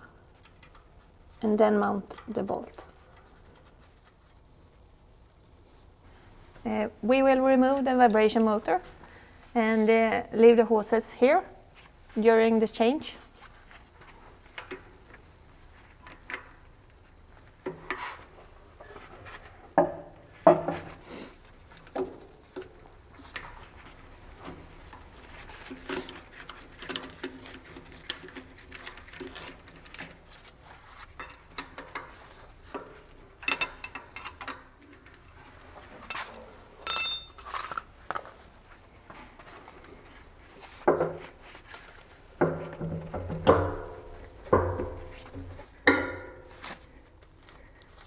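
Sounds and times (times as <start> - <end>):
ringing metal clank: 36.8 - 37.5.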